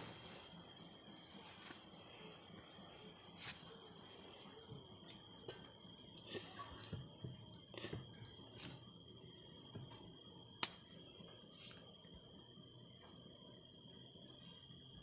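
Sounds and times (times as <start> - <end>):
high-pitched insect chorus: 0.0 - 15.0
sharp snaps: 10.6 - 10.8.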